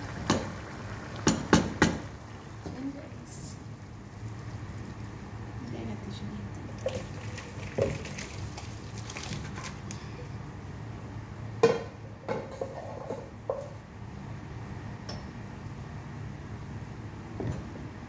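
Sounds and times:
cooking pot clanking: 1.2 - 2.9.

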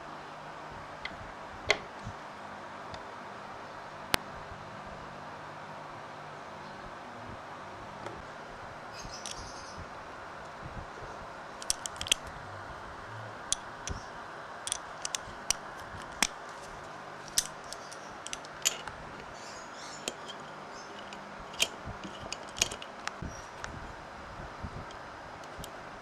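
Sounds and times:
steady background hiss: 0.0 - 26.0
small metallic clicks and taps: 11.6 - 12.3, 17.3 - 19.4, 20.0 - 23.8, 24.9 - 25.7.

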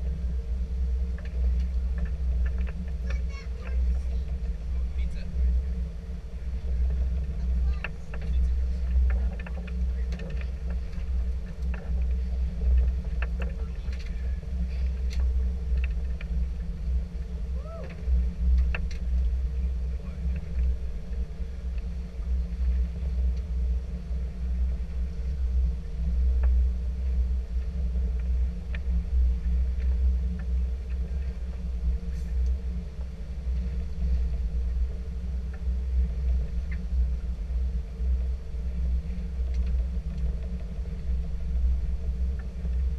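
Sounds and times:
boat engine rumbling: 0.0 - 42.9
faint steady hum: 0.0 - 42.9.

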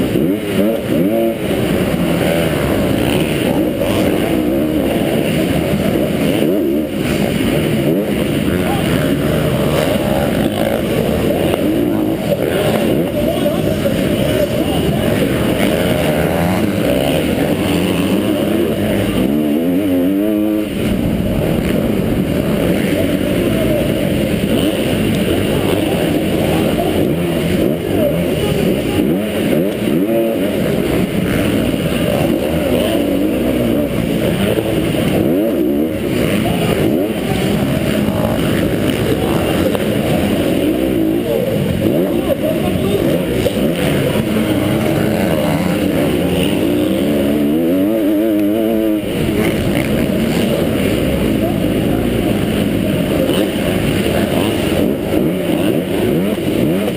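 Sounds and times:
motocross bike engine revving: 0.0 - 56.9.

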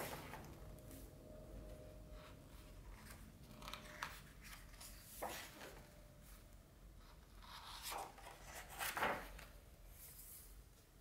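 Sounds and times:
book pages rustling: 2.8 - 5.9, 7.6 - 10.4
page flipping swish: 8.7 - 9.4.

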